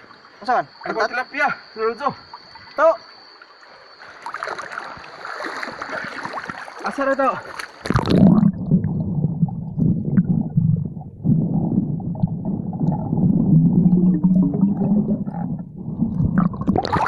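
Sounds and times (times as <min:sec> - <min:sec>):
faint hum: 0:07.8 - 0:17.0
muffled underwater rumbling: 0:07.8 - 0:17.0.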